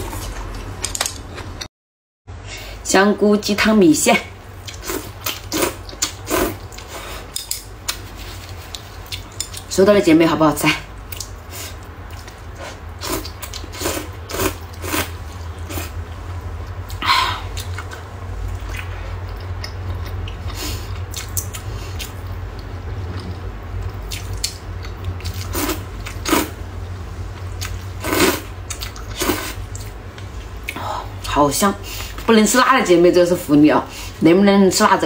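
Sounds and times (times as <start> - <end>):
person chewing: 4.6 - 9.7, 11.0 - 16.0, 16.6 - 26.5, 27.4 - 30.8
person slurping noodles: 4.8 - 7.3, 12.6 - 15.1, 25.4 - 26.5, 28.0 - 28.5
low hum: 10.9 - 31.4.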